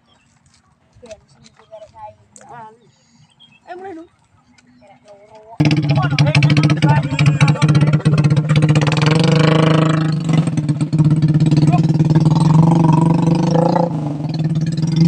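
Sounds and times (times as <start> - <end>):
motorbike engine revving: 5.6 - 15.0.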